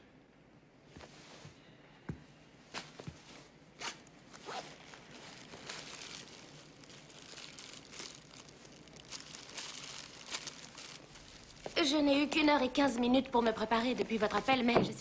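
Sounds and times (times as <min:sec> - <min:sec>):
plastic bag crinkling: 0:03.9 - 0:12.7.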